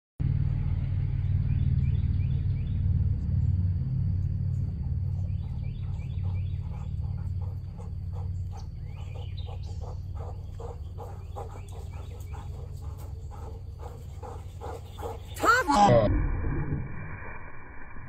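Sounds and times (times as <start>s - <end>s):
bird chirping descending notes: 0.4s - 13.4s.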